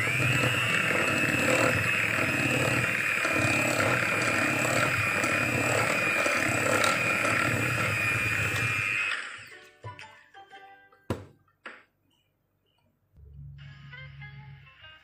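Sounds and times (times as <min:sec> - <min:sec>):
electric hand mixer whirring: 0:00.0 - 0:09.5.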